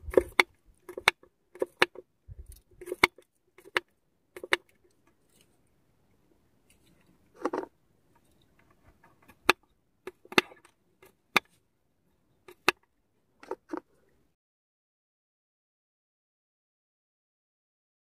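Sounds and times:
soft rustle: 4.8 - 5.8, 6.6 - 9.3.

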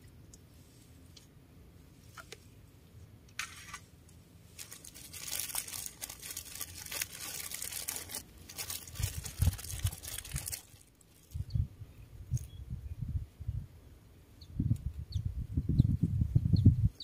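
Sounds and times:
crinkling crackling rustle: 3.4 - 11.5.

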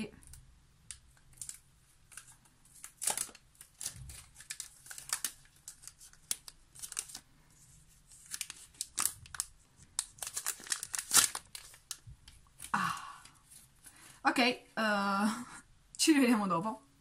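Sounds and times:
plastic film crinkling: 0.2 - 13.9.

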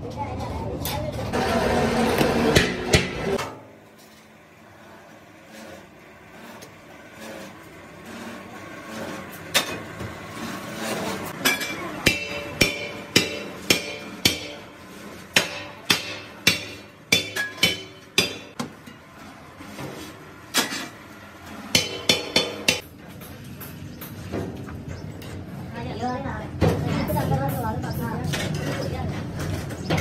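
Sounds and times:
hammer striking steel: 2.1 - 3.7, 11.4 - 18.7, 21.6 - 24.2.

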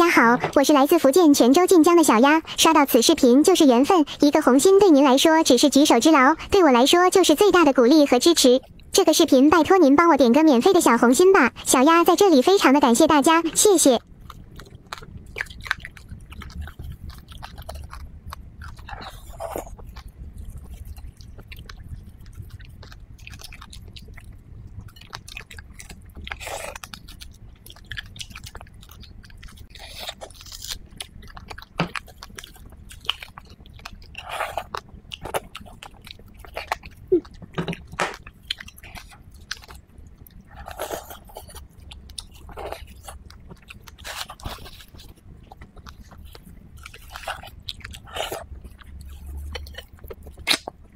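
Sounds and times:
chewing and biting food: 14.0 - 50.9
wet mouth clicks and smacks: 49.5 - 50.8.

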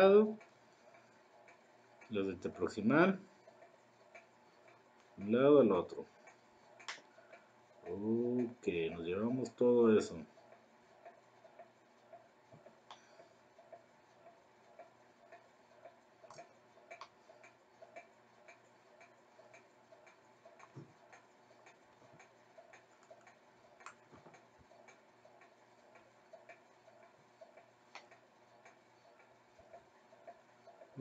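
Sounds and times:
faint even ticking: 0.0 - 31.0
clicks: 6.2 - 7.1, 16.2 - 30.8.

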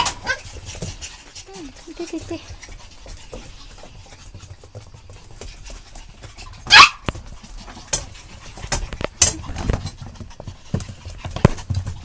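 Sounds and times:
puppies scuffling on hard floor: 0.0 - 12.0
puppy yelping: 6.6 - 7.1.

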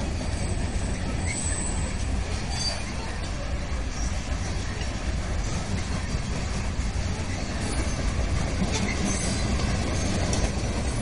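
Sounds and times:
high wheel squeals: 0.0 - 3.0, 7.3 - 11.0
steel wheels rumbling on rail: 0.0 - 11.0.

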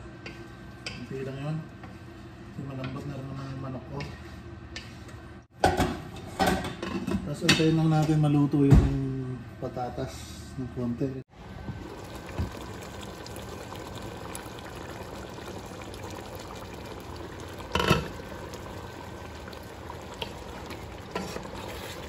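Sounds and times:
pot bubbling on stove: 11.3 - 22.0.

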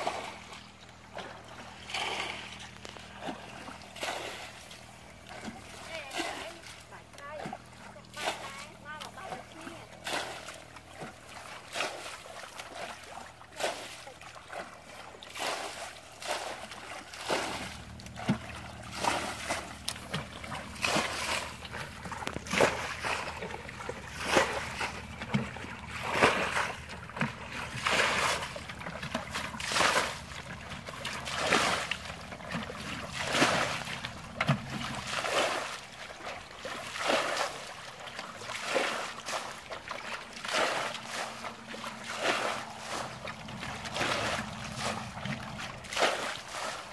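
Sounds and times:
bucket splashing muddy water: 0.0 - 46.9.

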